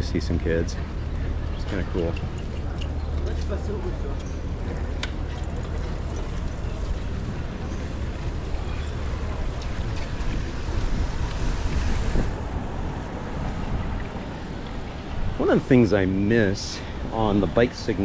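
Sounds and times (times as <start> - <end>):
street noise: 0.0 - 18.0
wind on microphone: 8.6 - 15.6.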